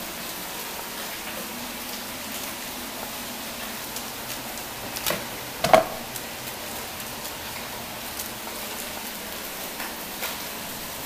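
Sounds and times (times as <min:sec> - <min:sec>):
meat sizzling in a pot: 0:00.0 - 0:11.0
knife knocking on cutting board: 0:05.6 - 0:06.0.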